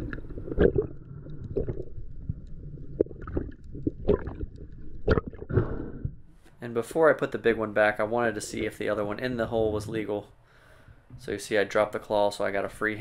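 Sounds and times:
low underwater rumble: 0:00.0 - 0:06.3.

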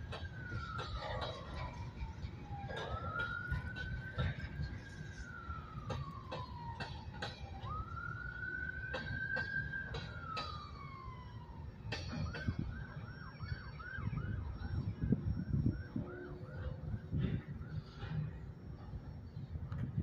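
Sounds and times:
freight train rumbling: 0:00.0 - 0:12.7, 0:14.9 - 0:20.0
train clanks: 0:00.0 - 0:12.7
siren wailing and yelping: 0:00.0 - 0:19.1.

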